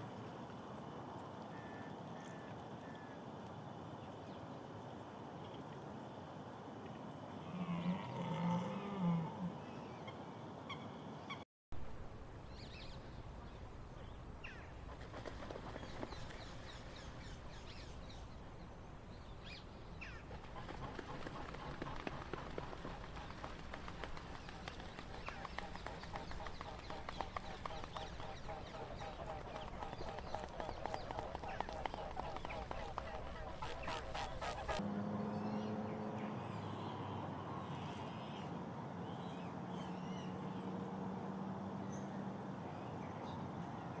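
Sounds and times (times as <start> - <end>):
outdoor background hiss: 0.0 - 44.0
small birds calling: 12.4 - 34.8.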